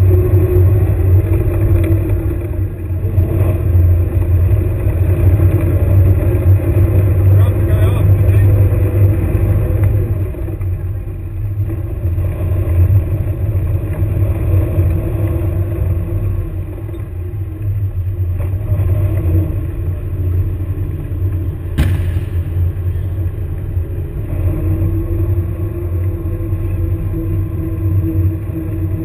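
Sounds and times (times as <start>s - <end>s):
vehicle engine rumbling: 0.0s - 29.0s
sharp crack: 21.8s - 23.2s.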